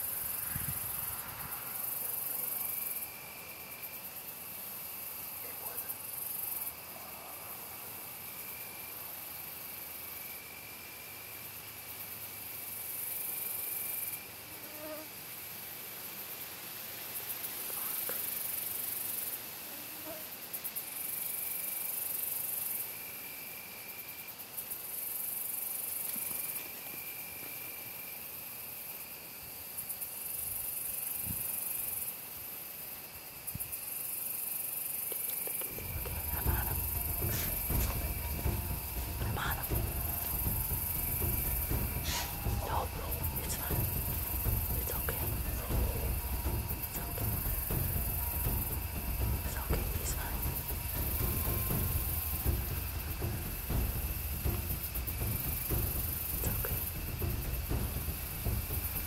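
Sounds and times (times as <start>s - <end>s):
insects chirring: 0.0s - 59.0s
faint steady high note: 35.5s - 59.0s
low rumble: 35.7s - 59.0s.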